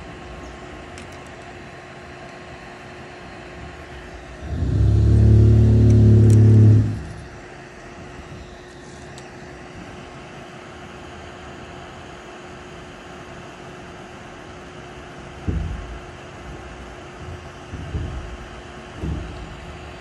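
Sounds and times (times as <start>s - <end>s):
loud low-pitched hum: 3.6s - 8.5s
hot-air gun blowing: 4.4s - 7.2s.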